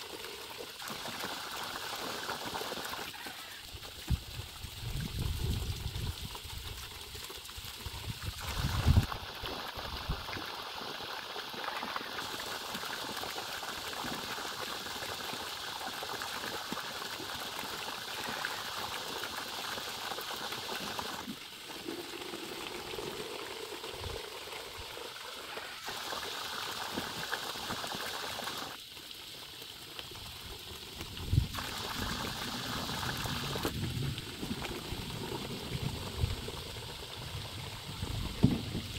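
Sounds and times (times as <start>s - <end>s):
water splashing into plastic bucket: 0.0s - 15.0s
thump: 38.4s - 38.7s.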